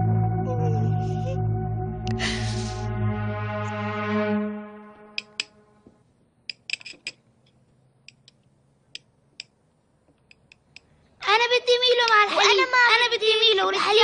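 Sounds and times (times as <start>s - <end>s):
music: 0.0s - 5.8s
cutlery and dishes clinking: 6.5s - 7.2s.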